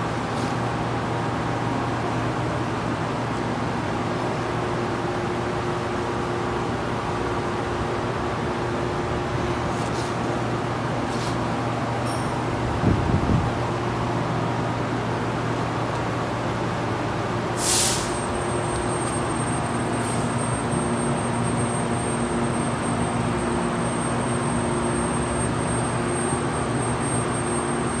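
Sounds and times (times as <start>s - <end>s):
short hiss: 17.6s - 18.2s.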